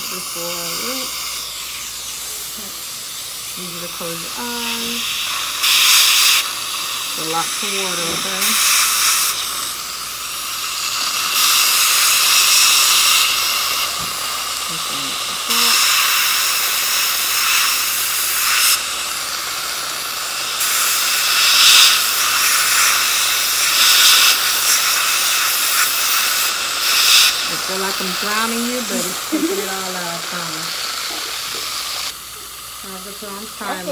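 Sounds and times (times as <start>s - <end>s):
suction tube hissing: 0.0s - 33.9s
air-water syringe spraying: 4.4s - 32.2s.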